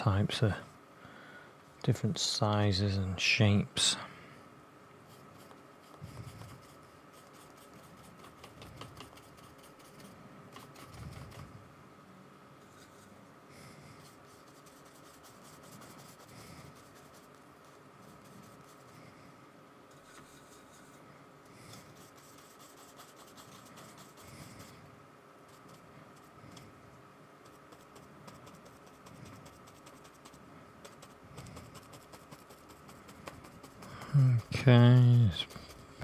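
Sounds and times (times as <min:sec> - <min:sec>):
paintbrush dabbing on paper: 0:05.1 - 0:11.5, 0:13.8 - 0:19.0, 0:19.9 - 0:21.0, 0:21.6 - 0:24.8, 0:27.4 - 0:36.0.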